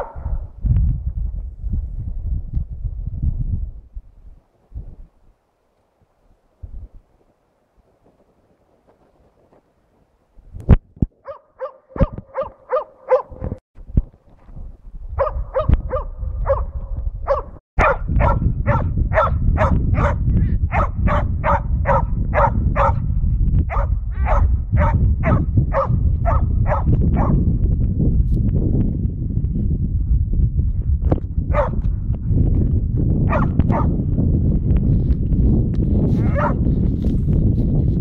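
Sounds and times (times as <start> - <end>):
dog barking: 0.0 - 0.4, 11.2 - 13.6, 15.2 - 23.1, 23.7 - 27.4, 31.5 - 31.8, 33.3 - 33.9, 36.2 - 36.6
wind rumbling on microphone: 0.0 - 38.0.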